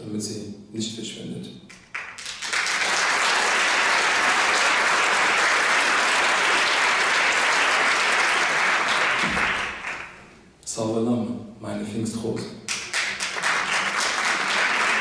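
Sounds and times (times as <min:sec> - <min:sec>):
audience applauding: 0:01.7 - 0:10.3, 0:12.7 - 0:15.0.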